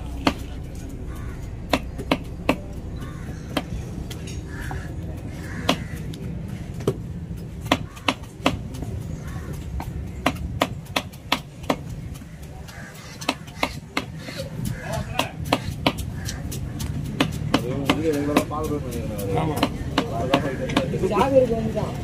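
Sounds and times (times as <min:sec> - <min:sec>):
knife chopping on wooden block: 0:07.6 - 0:08.9, 0:09.7 - 0:21.3.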